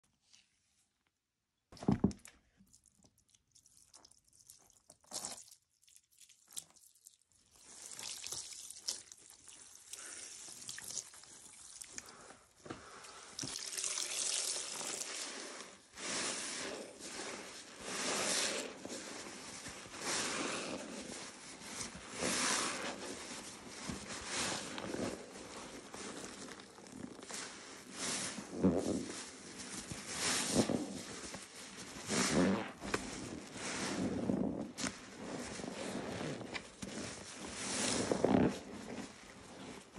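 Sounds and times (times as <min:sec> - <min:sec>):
water sloshing in a basin: 0:02.6 - 0:12.2, 0:12.8 - 0:16.3
sponge squelching: 0:02.6 - 0:39.9.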